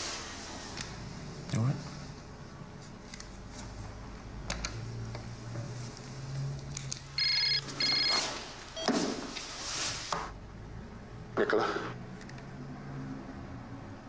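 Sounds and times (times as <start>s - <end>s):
telephone double ring: 7.2s - 8.9s.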